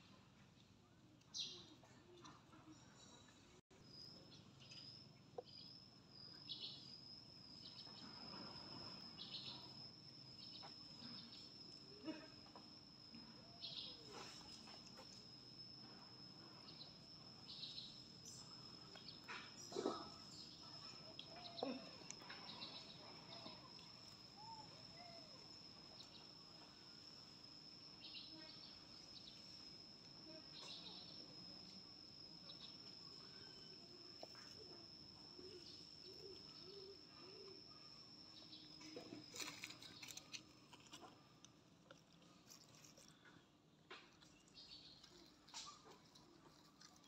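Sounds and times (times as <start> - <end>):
insect high-pitched call: 3.8 - 41.4
faint clicks and rustles: 38.8 - 47.0.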